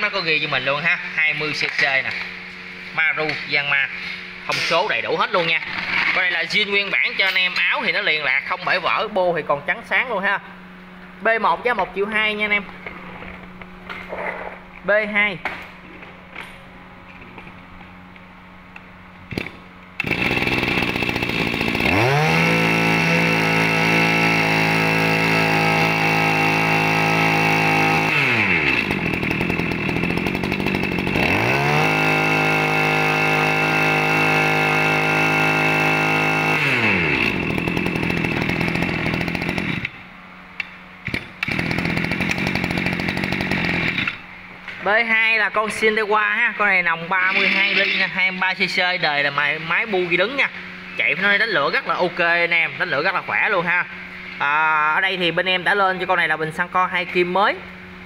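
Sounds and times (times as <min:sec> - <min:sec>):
brush cutter engine revving: 0:19.3 - 0:40.0, 0:41.0 - 0:44.2, 0:47.2 - 0:48.2.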